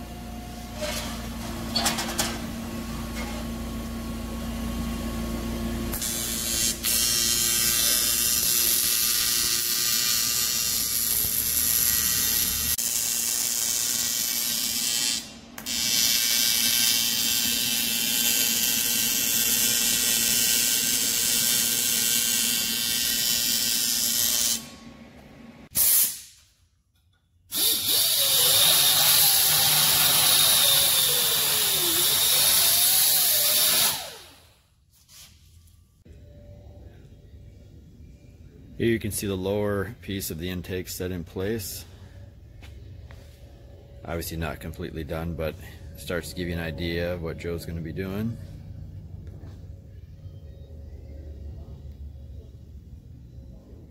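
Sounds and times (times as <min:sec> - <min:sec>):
welder buzzing and hissing: 0:05.8 - 0:24.8, 0:27.5 - 0:34.6.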